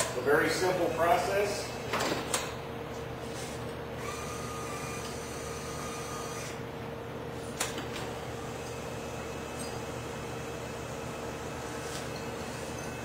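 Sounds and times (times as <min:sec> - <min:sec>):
constant hum: 0:00.0 - 0:13.0
small electric motor whining: 0:03.3 - 0:06.6.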